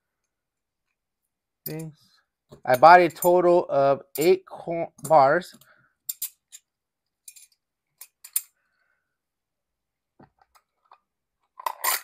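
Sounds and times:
metal bars clinking: 0:06.1 - 0:06.7, 0:07.3 - 0:08.5.

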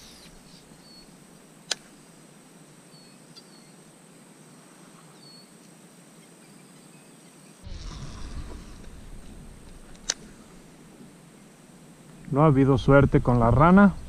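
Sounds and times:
high-pitched insect hum: 0:00.0 - 0:12.7
low rumble: 0:07.6 - 0:10.8.

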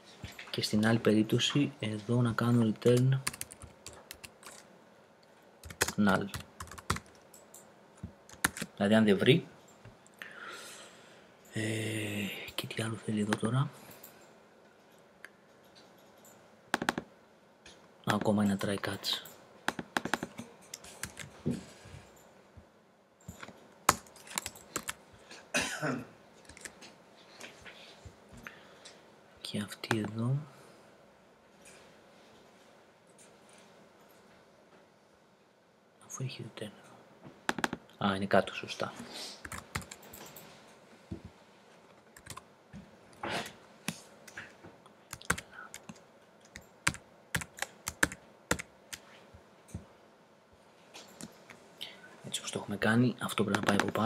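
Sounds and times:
computer keyboard keys clicking: 0:02.9 - 0:04.6, 0:05.6 - 0:07.7, 0:08.3 - 0:08.7, 0:15.5 - 0:17.1, 0:19.7 - 0:21.4, 0:23.3 - 0:25.0, 0:26.4 - 0:26.8, 0:37.5 - 0:37.8, 0:39.4 - 0:40.4, 0:42.2 - 0:42.4, 0:45.1 - 0:49.0
keyboard typing clicks: 0:14.8 - 0:17.1, 0:23.2 - 0:25.0, 0:37.5 - 0:37.8, 0:42.2 - 0:42.4, 0:45.1 - 0:49.0
person clearing throat: 0:25.5 - 0:26.1.

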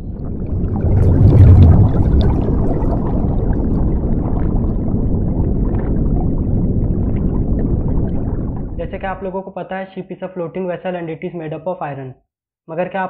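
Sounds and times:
underwater bubbling and rumble: 0:00.0 - 0:09.3.

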